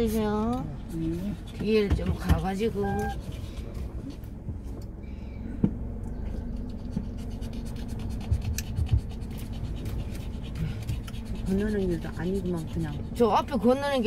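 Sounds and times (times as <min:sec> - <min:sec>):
scratchy rubbing: 0:00.0 - 0:03.8, 0:06.5 - 0:14.0
low rumble in car cabin: 0:00.0 - 0:14.0.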